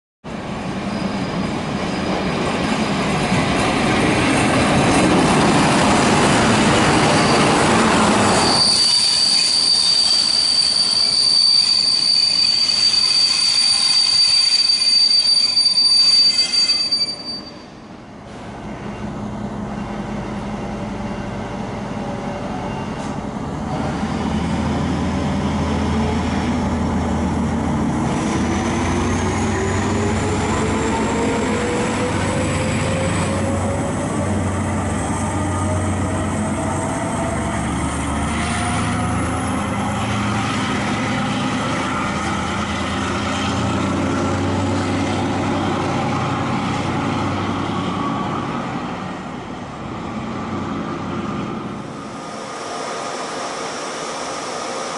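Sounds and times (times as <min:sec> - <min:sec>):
locomotive rumbling on rails: 0:00.3 - 0:54.9
high-pitched wheel squeal: 0:06.7 - 0:17.9.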